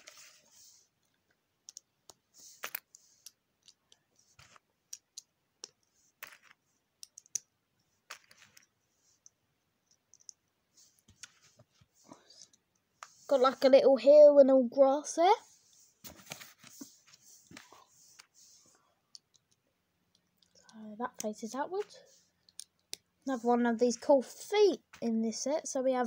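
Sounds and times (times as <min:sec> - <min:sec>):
plastic bricks clicking: 0:01.6 - 0:04.0, 0:04.9 - 0:07.5, 0:19.1 - 0:20.7, 0:21.8 - 0:23.0.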